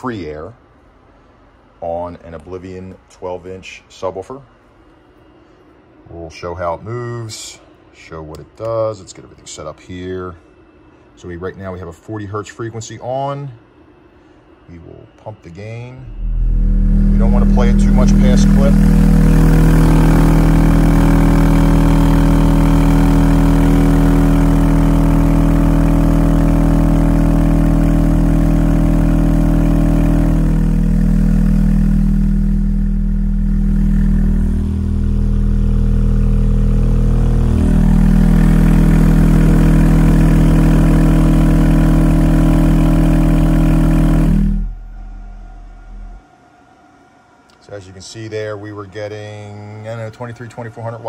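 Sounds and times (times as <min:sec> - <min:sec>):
subwoofer low buzzy drone: 0:15.8 - 0:46.2.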